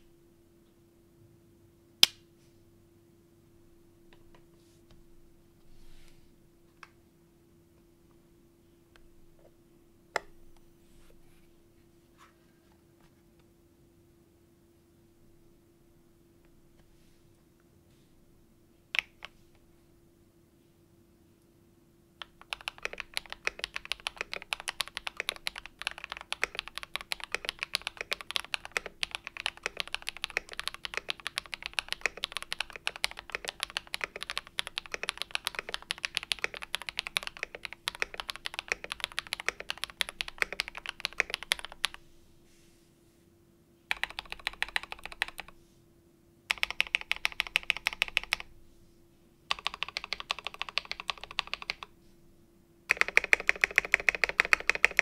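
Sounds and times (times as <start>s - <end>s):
typing on mechanical keyboard: 22.2s - 42.0s, 43.9s - 45.5s, 46.5s - 48.5s, 49.5s - 51.9s, 52.9s - 55.0s.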